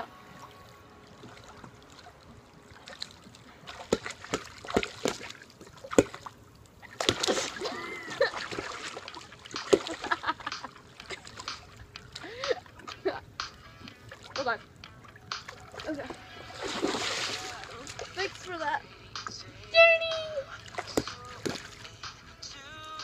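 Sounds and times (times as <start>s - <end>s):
pool water splashing: 0.0s - 23.0s
girl calling out: 19.6s - 20.6s.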